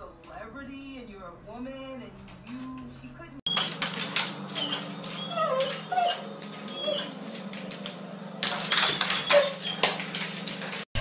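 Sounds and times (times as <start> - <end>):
scuffling and clattering: 3.5 - 10.9.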